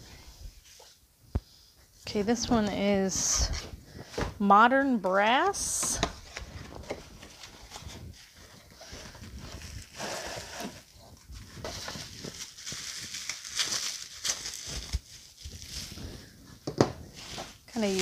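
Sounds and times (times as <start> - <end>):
plastic wrap crinkling: 6.0 - 18.0.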